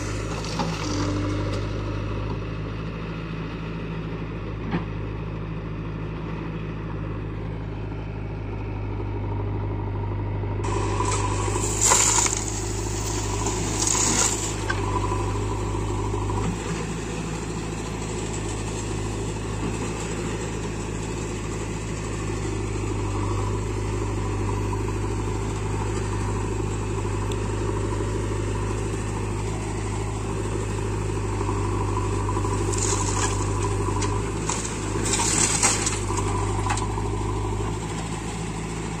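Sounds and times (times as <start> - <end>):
diesel engines running: 0.0 - 39.0
soil pouring from bucket: 10.7 - 14.8, 32.5 - 33.8.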